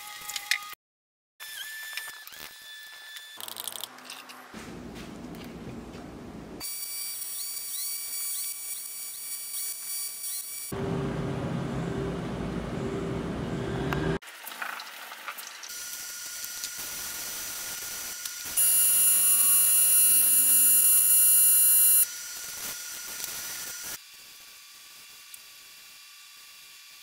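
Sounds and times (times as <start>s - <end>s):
low droning: 10.7s - 14.2s.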